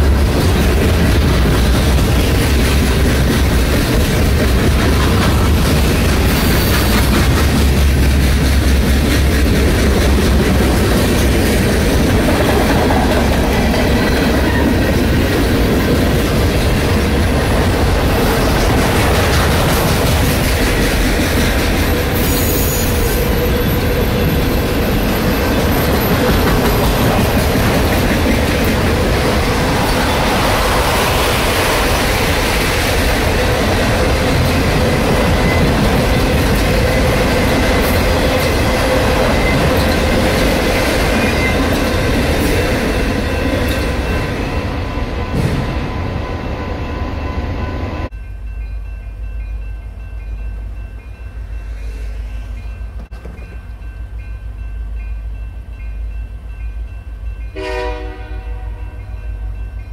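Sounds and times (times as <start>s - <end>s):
train wheels rumbling on rail: 0.0s - 59.9s
crossing warning bell ringing: 13.1s - 19.3s, 33.0s - 59.9s.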